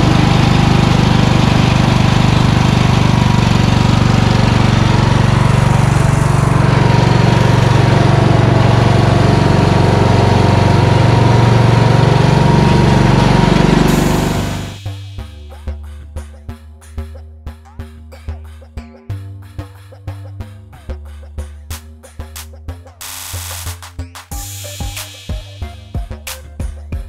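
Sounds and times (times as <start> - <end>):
lawn tractor engine running: 0.0 - 14.9.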